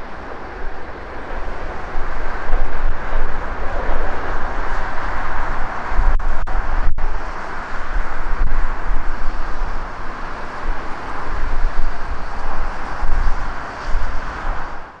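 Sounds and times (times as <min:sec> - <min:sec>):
freight train rumbling hiss: 0:00.0 - 0:15.0
heavy low rumble: 0:00.0 - 0:15.0.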